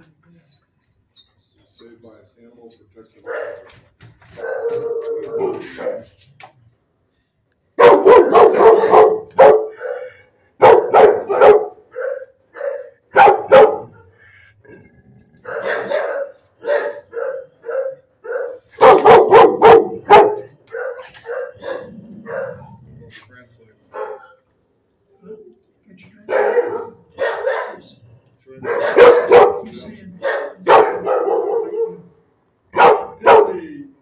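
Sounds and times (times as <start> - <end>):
large dog barking: 3.2 - 3.7, 4.3 - 6.2, 7.8 - 14.2, 15.4 - 22.9, 23.9 - 24.4, 26.2 - 28.0, 28.6 - 33.9.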